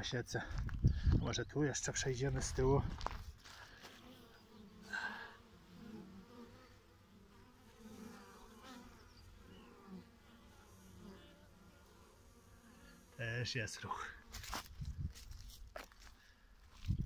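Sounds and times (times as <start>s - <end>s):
honey bees buzzing: 3.3s - 14.8s.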